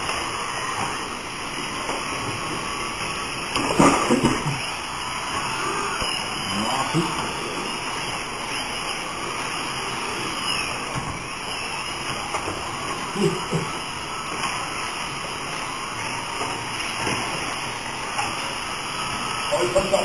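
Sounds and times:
small electric motors whining: 0:00.0 - 0:20.0
steady hiss: 0:00.0 - 0:20.0
faint voices: 0:03.6 - 0:11.0, 0:12.0 - 0:14.4.

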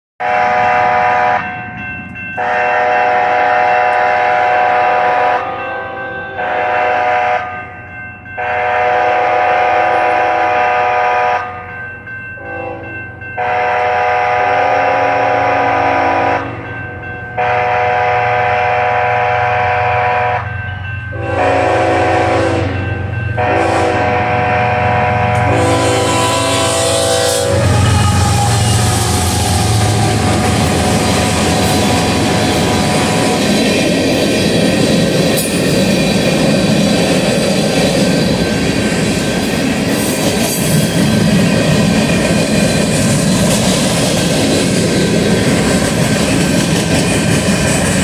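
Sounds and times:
locomotive air horn blasts: 0:00.2 - 0:01.5, 0:02.4 - 0:07.6, 0:08.4 - 0:11.6, 0:12.4 - 0:16.7, 0:17.4 - 0:20.5, 0:21.2 - 0:33.4
locomotive engine hum: 0:13.4 - 0:48.0.

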